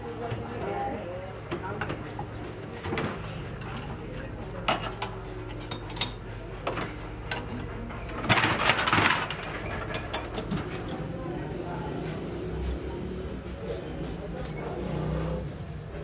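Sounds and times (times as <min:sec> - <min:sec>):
metallic clanks and rattles: 0:08.1 - 0:10.9.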